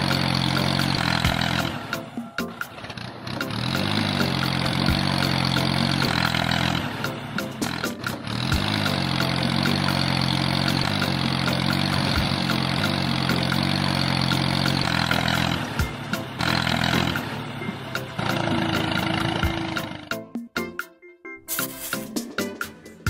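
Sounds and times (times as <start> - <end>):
tractor engine chugging: 0.0 - 20.6
background music: 0.0 - 23.0.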